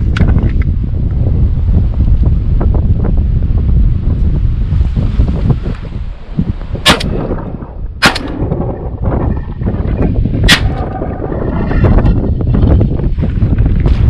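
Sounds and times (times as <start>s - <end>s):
wind buffeting microphone: 0.0s - 14.0s
shotgun shots: 6.9s - 7.2s, 8.0s - 8.5s, 10.5s - 10.8s.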